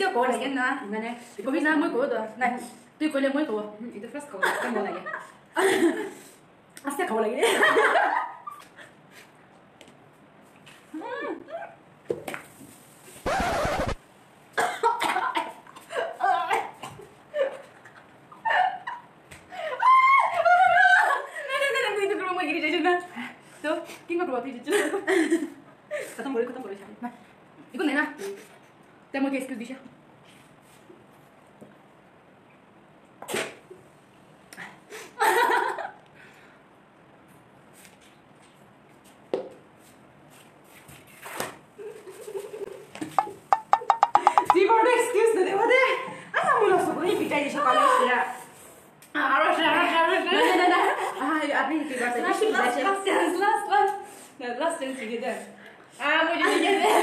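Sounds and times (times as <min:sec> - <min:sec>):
laughter: 0:04.3 - 0:06.3, 0:07.4 - 0:08.9, 0:14.6 - 0:19.1, 0:19.9 - 0:21.8, 0:24.7 - 0:25.6, 0:35.2 - 0:36.0, 0:41.8 - 0:43.0, 0:50.1 - 0:51.3, 0:56.4 - 0:57.0
plastic bottle knocks: 0:43.2 - 0:44.6.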